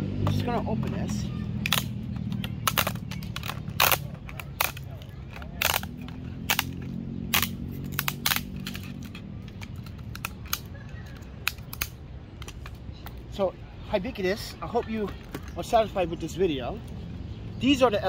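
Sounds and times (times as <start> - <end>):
plastic housing cracking: 1.6 - 12.8.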